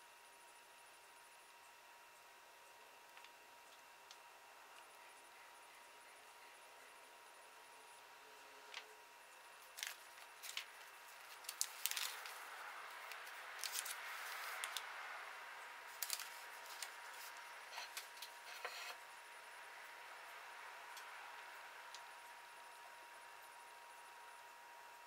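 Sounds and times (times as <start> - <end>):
plastic bag crinkling: 9.6 - 14.8, 15.9 - 18.1.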